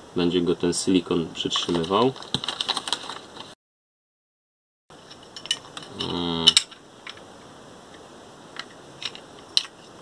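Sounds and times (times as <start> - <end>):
brief vocal sound: 5.9 - 6.6.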